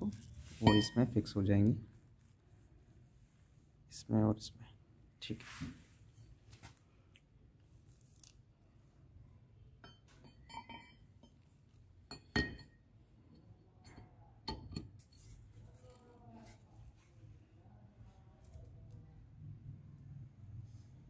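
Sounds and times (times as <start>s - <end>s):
metal clinks and knocks: 9.8s - 11.5s, 12.1s - 12.8s.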